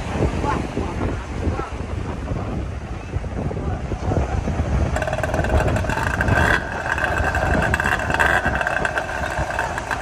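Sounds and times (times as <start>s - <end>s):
outboard motor running: 3.6s - 10.0s.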